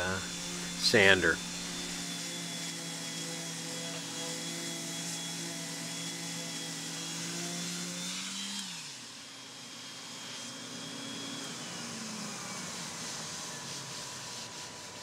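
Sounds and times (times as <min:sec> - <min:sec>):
steady hum: 0:00.0 - 0:02.0
electric sander running: 0:00.0 - 0:08.7.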